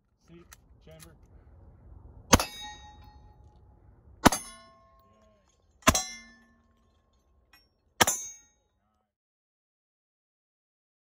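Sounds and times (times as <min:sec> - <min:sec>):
bullet clanging on steel plate: 0:04.2 - 0:08.6.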